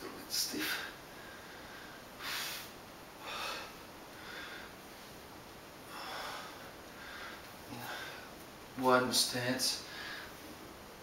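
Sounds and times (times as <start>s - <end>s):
man exhaling sharply through nose: 2.2s - 4.7s.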